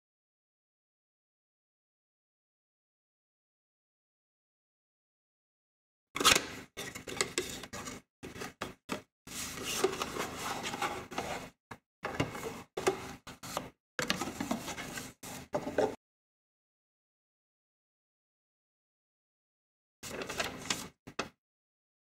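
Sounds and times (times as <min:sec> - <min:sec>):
cardboard box rustling and scraping: 0:09.3 - 0:11.6.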